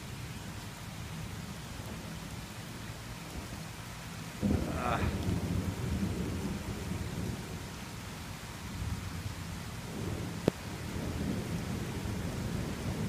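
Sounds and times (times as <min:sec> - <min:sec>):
steady rain: 0:00.0 - 0:13.0
thunderclap rolling thunder: 0:04.4 - 0:07.7, 0:09.8 - 0:13.0.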